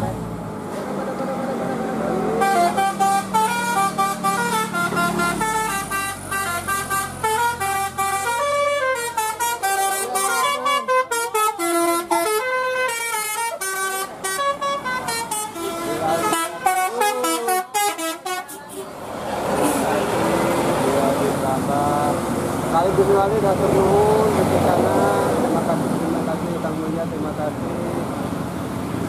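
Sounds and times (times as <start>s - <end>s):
bus engine humming: 0.0s - 29.0s
bus horn playing melody: 1.4s - 18.8s.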